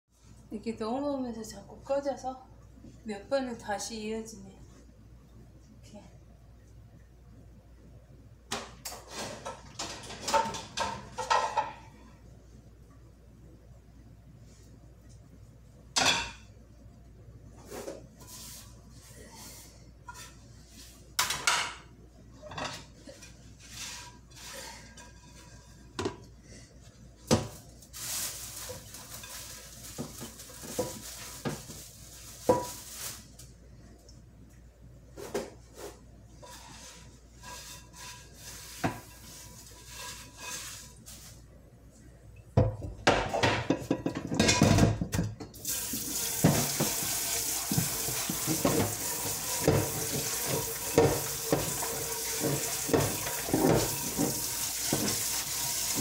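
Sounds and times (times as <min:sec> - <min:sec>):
pots and pans clattering: 0:08.5 - 0:12.0, 0:16.0 - 0:16.5, 0:42.6 - 0:45.5, 0:46.2 - 0:56.0.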